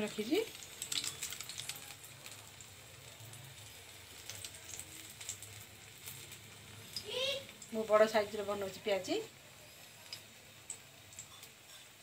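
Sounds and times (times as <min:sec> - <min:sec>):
oil sizzling in a frying pan: 0:00.0 - 0:12.0
light crackles: 0:00.5 - 0:07.8.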